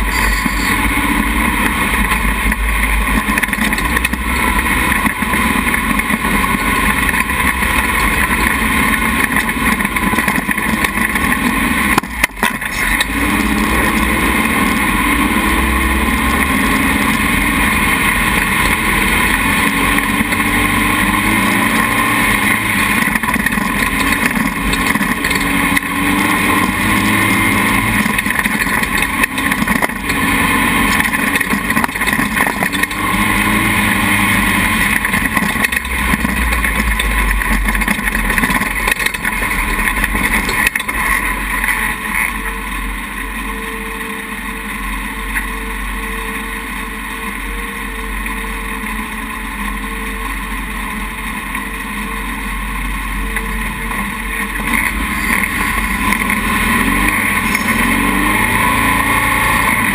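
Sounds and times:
dune buggy engine revving: 0.0s - 59.9s.

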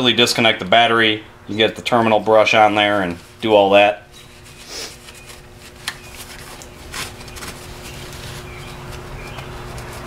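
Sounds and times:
paper towel rubbing on plastic: 4.2s - 10.0s.

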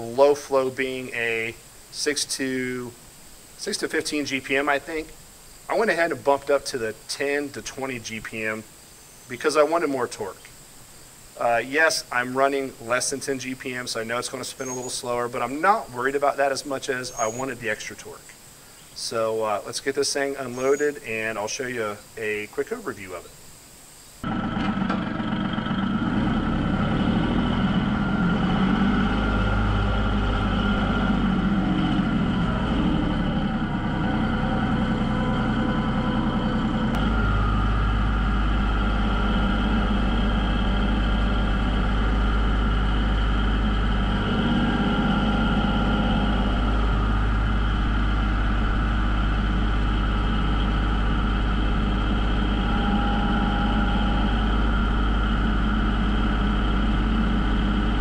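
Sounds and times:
tractor diesel engine running: 24.2s - 58.0s.

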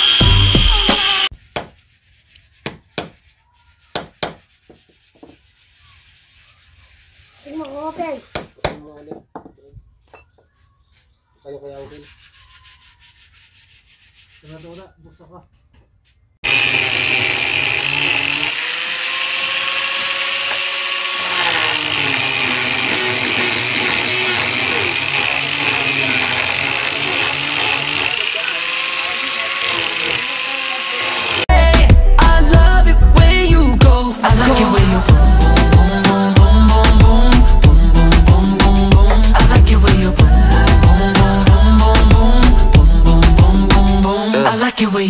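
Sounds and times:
angle grinder motor whine: 0.0s - 1.3s, 16.4s - 31.5s
disc rasping on wood: 16.4s - 31.5s.

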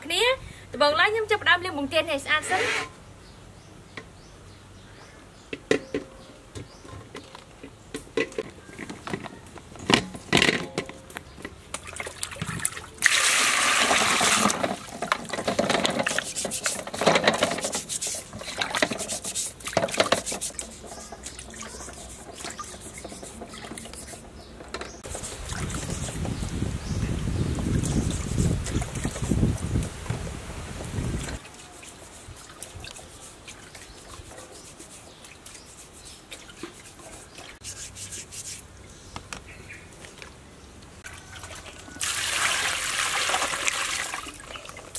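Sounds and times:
water splashing: 11.7s - 24.3s, 25.0s - 26.6s, 41.0s - 44.9s
water pouring: 11.8s - 24.1s, 41.1s - 44.9s.

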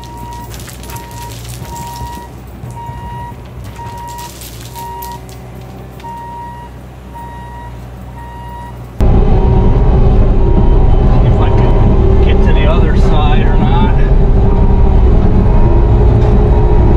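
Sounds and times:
gravel clattering from bucket: 0.0s - 2.8s, 3.6s - 6.0s
backup alarm beeping: 0.0s - 5.3s, 6.0s - 13.1s
diesel engine running: 0.0s - 16.9s.

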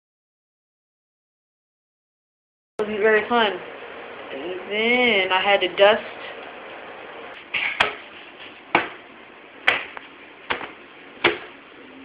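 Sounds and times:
sharp knocks: 7.6s - 8.1s, 8.7s - 9.0s, 9.6s - 11.6s.

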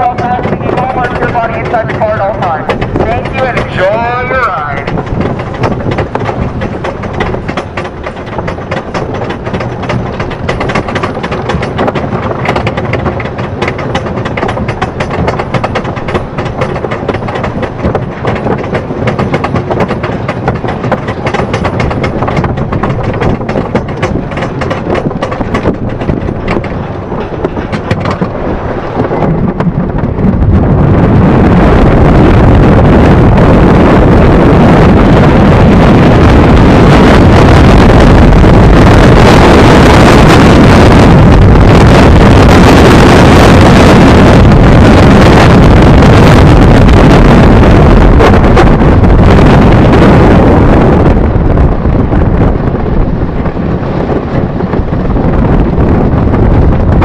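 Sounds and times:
lift chain clatter: 0.0s - 30.0s
anti-rollback clicking: 0.0s - 30.3s
wind rushing on microphone: 0.0s - 57.0s.

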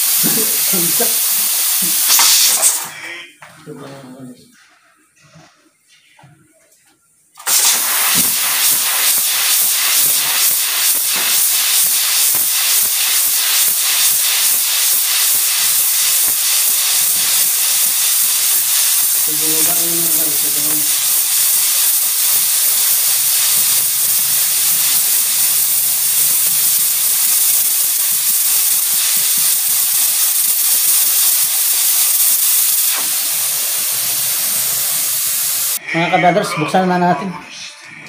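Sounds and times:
pressure cooker steam hissing: 0.0s - 3.0s, 7.4s - 35.8s.

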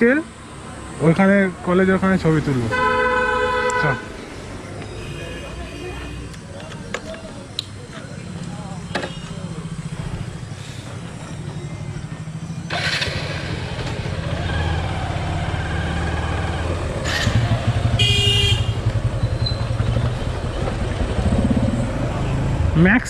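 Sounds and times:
vehicle horn toot: 2.7s - 4.1s, 8.9s - 9.4s, 17.9s - 19.1s
motorcycle engine running: 8.2s - 22.8s.

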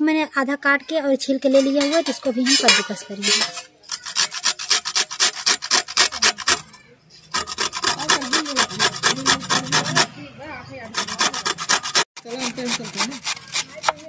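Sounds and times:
grating on a metal grater: 3.2s - 10.2s, 10.8s - 14.0s.

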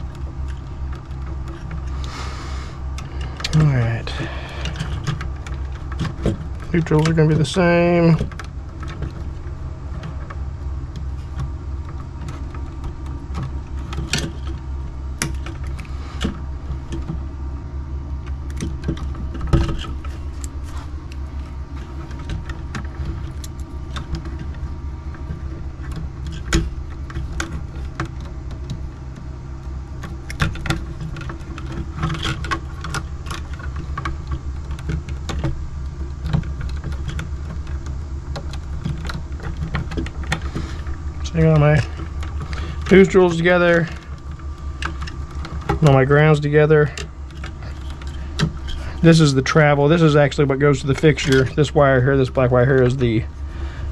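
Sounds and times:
steady low hum: 0.0s - 53.9s
metallic clicks of wire strippers: 2.9s - 17.2s.

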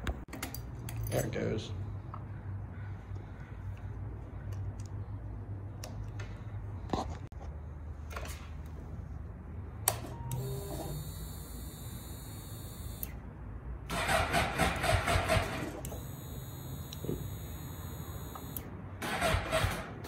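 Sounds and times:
fuel pump high whine: 9.8s - 13.2s, 13.9s - 19.5s
starter cranking engine: 13.9s - 20.0s.

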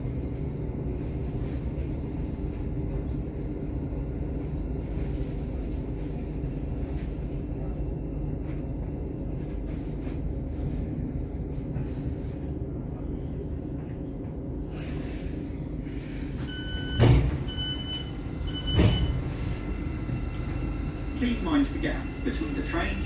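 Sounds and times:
train running rumble: 0.0s - 23.0s
door beeps: 16.4s - 19.4s
sliding doors thumping open: 16.5s - 19.5s.

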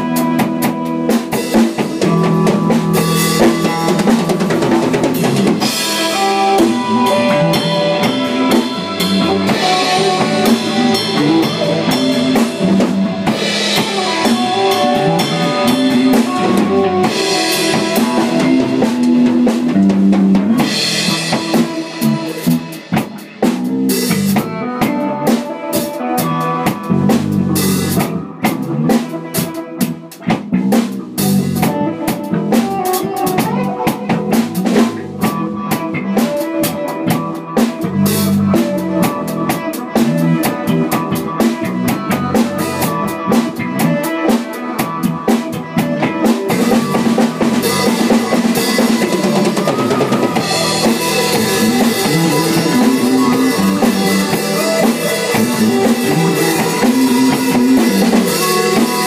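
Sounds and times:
drum kit playing: 0.0s - 59.0s
sustained pitched instrument notes: 5.6s - 19.6s.

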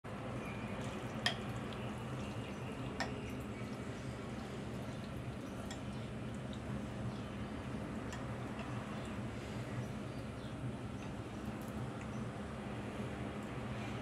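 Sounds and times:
wet noodle sounds: 0.1s - 10.4s
steady low hum: 0.1s - 14.0s.

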